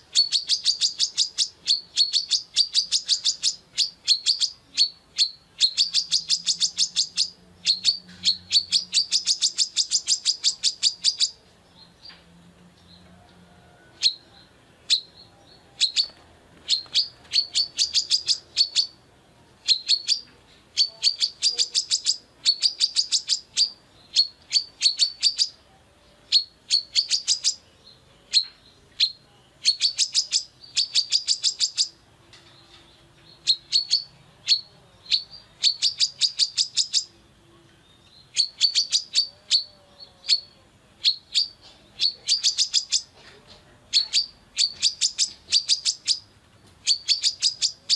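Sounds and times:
bird chirping: 0.0 - 47.9.

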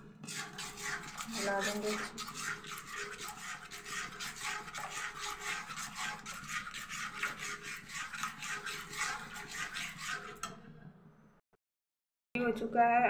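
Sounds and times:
metal fork scraping a pan: 0.0 - 10.7.

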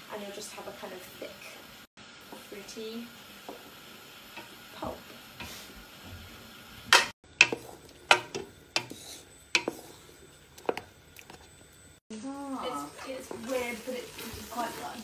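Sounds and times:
spoon stirring berries in liquid: 7.4 - 11.6.

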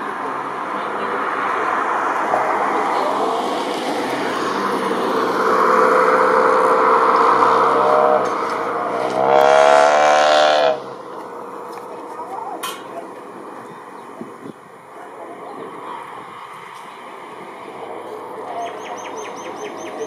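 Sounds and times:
engine rising in pitch: 0.0 - 14.4.

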